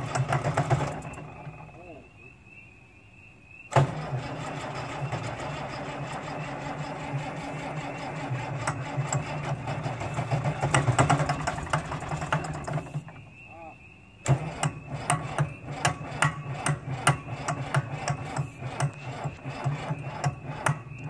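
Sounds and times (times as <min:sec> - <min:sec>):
starter motor cranking: 0:00.0 - 0:01.9, 0:03.7 - 0:13.4, 0:14.2 - 0:21.0
diesel engine clattering: 0:00.0 - 0:02.0, 0:03.7 - 0:13.5, 0:14.2 - 0:21.0.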